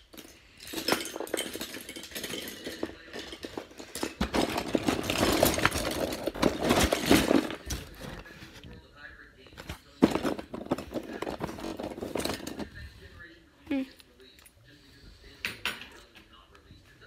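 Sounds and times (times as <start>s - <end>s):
plastic bricks clattering: 0.0s - 8.3s, 9.6s - 12.7s.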